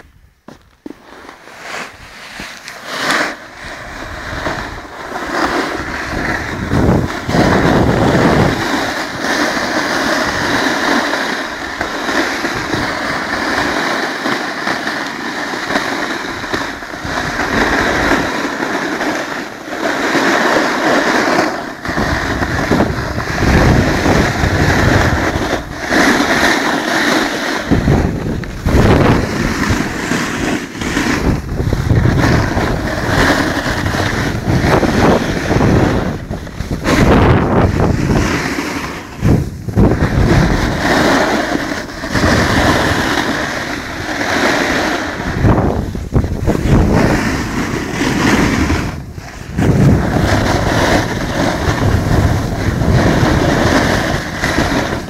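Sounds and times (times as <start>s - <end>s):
snowboard edge scraping snow: 0.0s - 55.0s
wind buffeting microphone: 3.5s - 13.8s, 15.6s - 18.4s, 21.7s - 55.0s.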